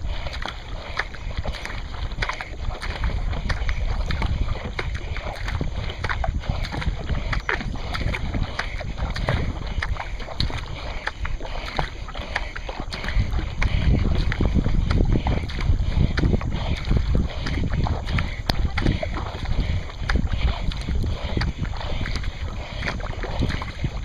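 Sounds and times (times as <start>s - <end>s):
paddle water splashing: 0.0s - 24.0s
wind rumble on microphone: 0.0s - 24.0s.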